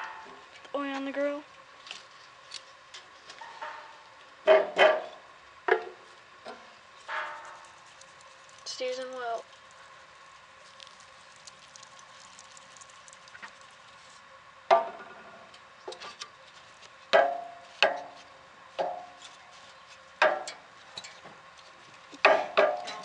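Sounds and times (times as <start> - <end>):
metallic clanks of grill grate: 18.8 - 19.4, 20.2 - 21.3, 22.2 - 23.0.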